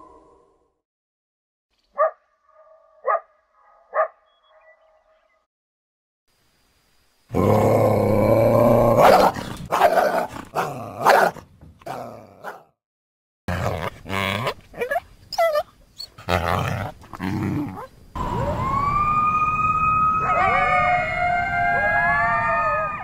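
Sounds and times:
coyote barks and yips: 3.0 - 4.3, 9.0 - 12.7, 14.4 - 16.3.

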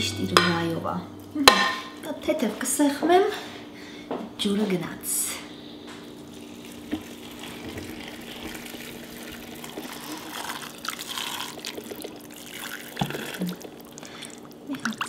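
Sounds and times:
water pouring into metal pot: 6.4 - 15.0
water splashing onto ceramic plate: 6.6 - 15.0.

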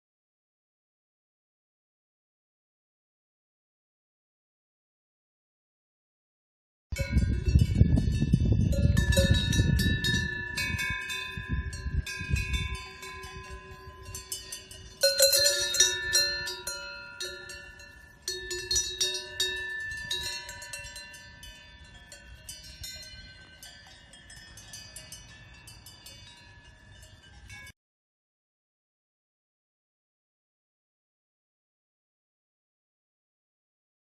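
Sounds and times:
low wind rumble on microphone: 6.9 - 23.6
cowbells clanking: 7.0 - 27.7.

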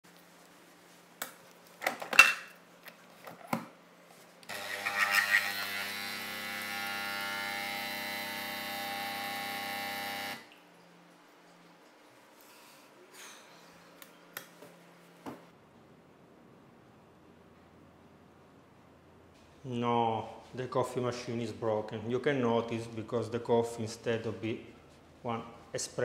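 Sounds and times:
coffee machine pump buzzing: 4.5 - 10.5.

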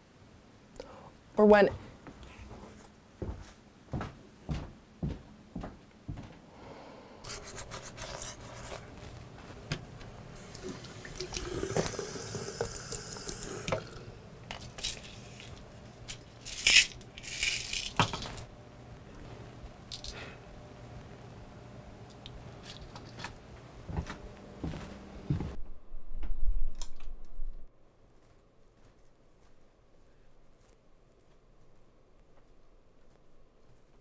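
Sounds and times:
sink tap running: 10.4 - 14.2
hands washing under water: 10.4 - 15.6.

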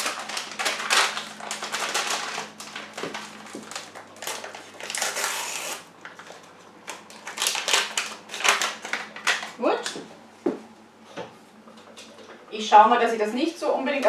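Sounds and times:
paper packet crinkling and tearing: 0.0 - 9.6.

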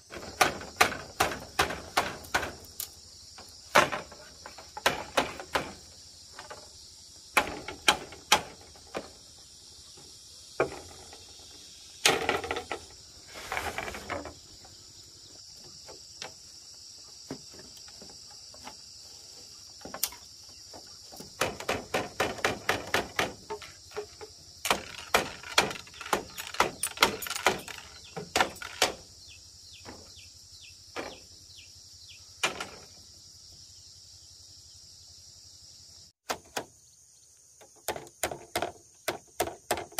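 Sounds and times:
insects droning: 0.0 - 39.9
knocks and clatters: 0.1 - 6.7, 7.4 - 9.2, 10.0 - 14.5, 19.8 - 29.1, 32.4 - 33.0.

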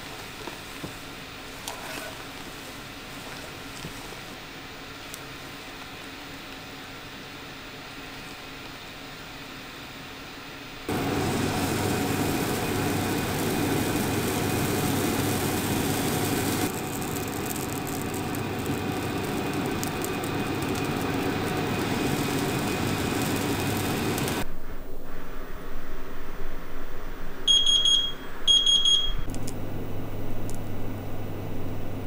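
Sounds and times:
batter sizzling in frying pan: 10.9 - 24.4.

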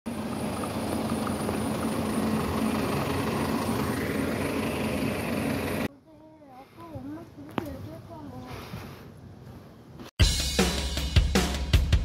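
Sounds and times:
bus engine running: 0.1 - 5.9.

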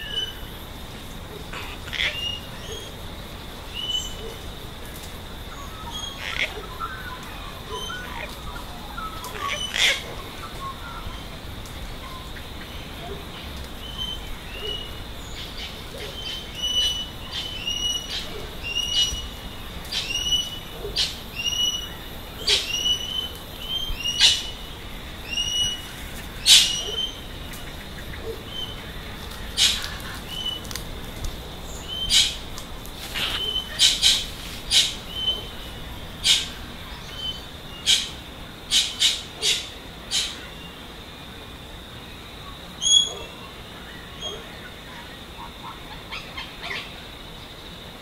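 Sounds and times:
parrots chirping: 1.4 - 2.9, 5.5 - 30.8, 31.7 - 40.4
parrots screeching harshly: 1.5 - 2.4, 6.0 - 6.6, 9.4 - 10.1, 33.1 - 34.2.

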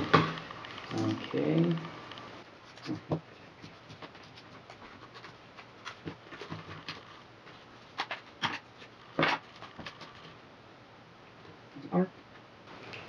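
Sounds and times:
electrical tape crackling: 0.0 - 10.4.

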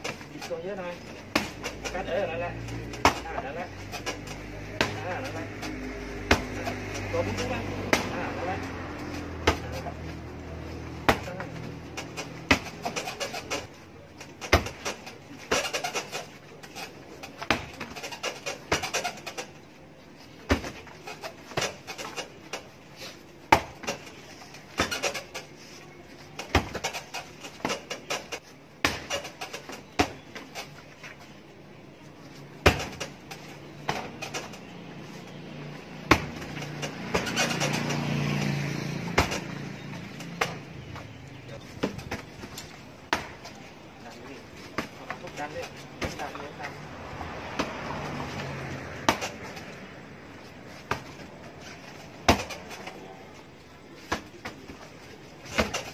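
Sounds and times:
kicks striking heavy bag: 11.0 - 11.5, 12.1 - 12.9, 32.6 - 33.1, 36.0 - 37.4, 39.1 - 39.5.

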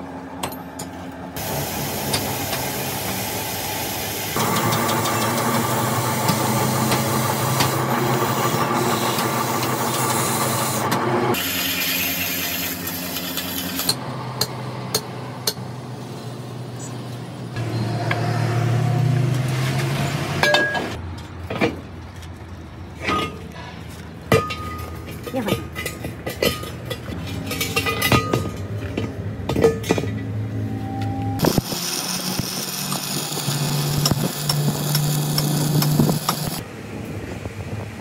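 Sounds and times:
motor running: 31.4 - 36.6.

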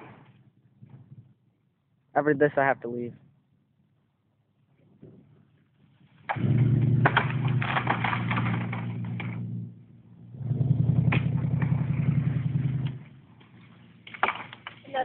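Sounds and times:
branches scraping across dirt: 5.4 - 9.6
truck engine under load: 6.3 - 14.7.

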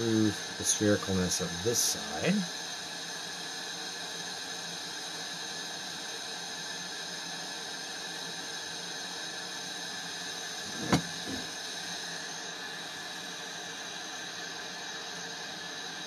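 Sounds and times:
torch hissing: 0.0 - 16.0
sharp knock: 10.7 - 11.4.

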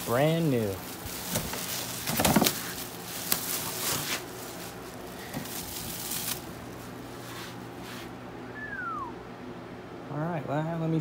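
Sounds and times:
packaging rustling and crinkling: 0.0 - 7.6.

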